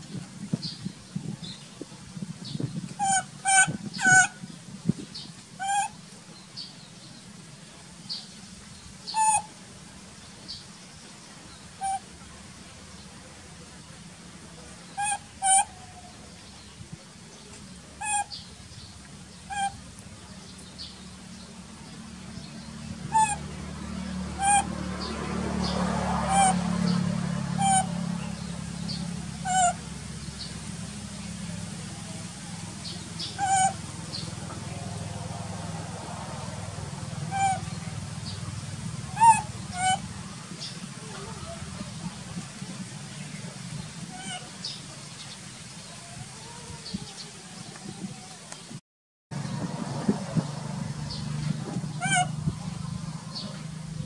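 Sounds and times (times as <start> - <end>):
baby monkey crying: 19.5 - 19.8, 23.1 - 23.4, 24.4 - 24.7, 26.2 - 26.6, 27.6 - 27.9, 29.4 - 29.8, 33.4 - 33.8, 37.3 - 37.7, 39.2 - 40.0, 52.0 - 52.3.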